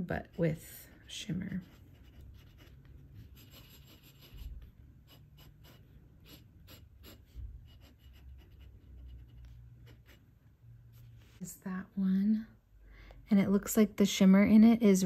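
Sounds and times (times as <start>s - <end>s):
pen scratching on paper: 0.1s - 10.3s.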